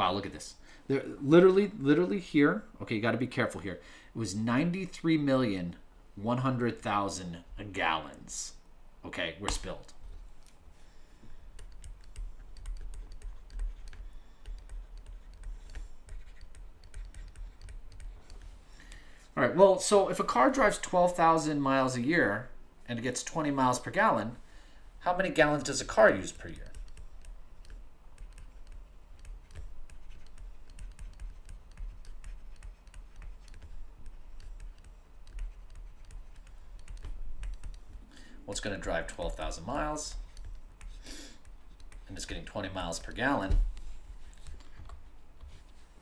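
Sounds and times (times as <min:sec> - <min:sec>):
stylus tapping on screen: 0:11.2 - 0:19.0, 0:26.4 - 0:38.0, 0:40.1 - 0:42.1.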